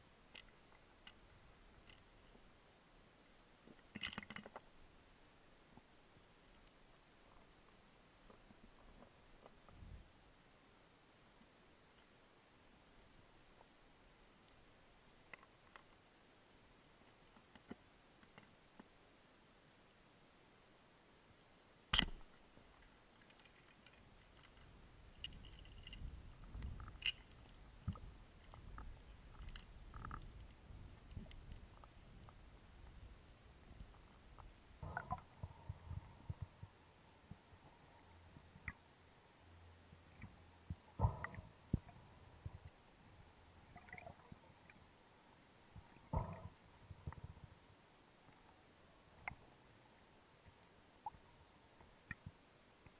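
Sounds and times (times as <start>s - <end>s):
faint clicks and crackles: 0.0s - 2.6s, 3.4s - 10.2s, 11.4s - 20.4s, 21.3s - 52.9s
small clicks: 0.3s - 2.4s, 3.7s - 4.7s, 21.9s - 38.8s
speargun firing underwater: 21.9s - 22.3s
low water rumbles: 21.9s - 52.9s.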